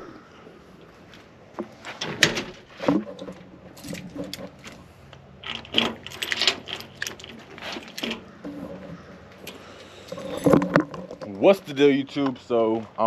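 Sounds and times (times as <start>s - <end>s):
keys jangling: 5.4s - 8.2s.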